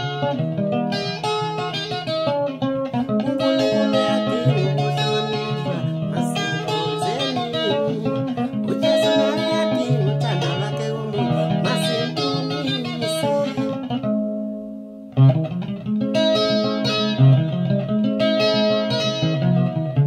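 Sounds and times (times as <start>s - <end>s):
acoustic guitar chords: 0.0s - 20.0s
man singing: 3.1s - 14.0s.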